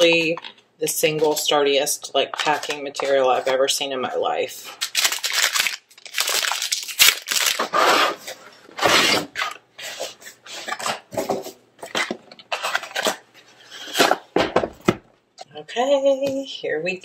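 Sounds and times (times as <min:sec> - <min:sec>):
plastic crinkling and rustling: 0:04.6 - 0:08.8, 0:10.6 - 0:14.2.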